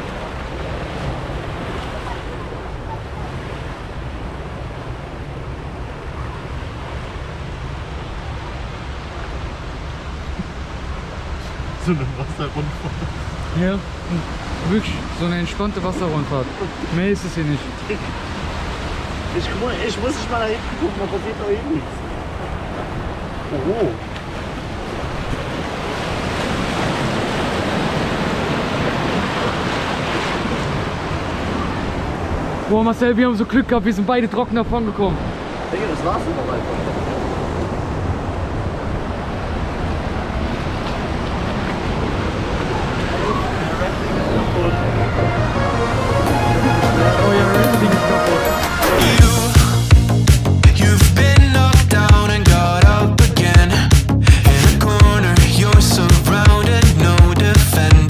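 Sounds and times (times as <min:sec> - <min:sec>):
wind rumbling on microphone: 0:00.0 - 0:32.7, 0:34.6 - 0:47.4
water rushing and churning: 0:00.0 - 0:58.0.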